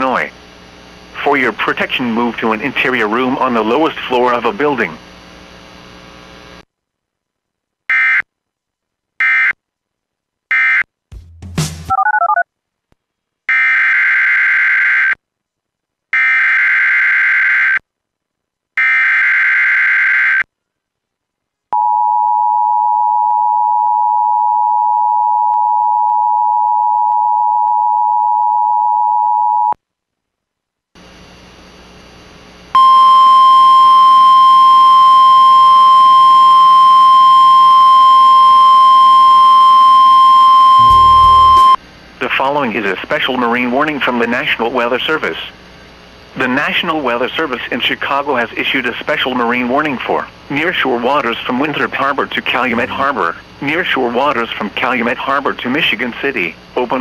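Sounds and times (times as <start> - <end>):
two-tone attention signal: 39.6 - 41.8
buzzing data bursts: 40.8 - 41.8
steady alert tone: 40.8 - 41.8, 52.6 - 53.4
warbling glitch: 40.8 - 41.8.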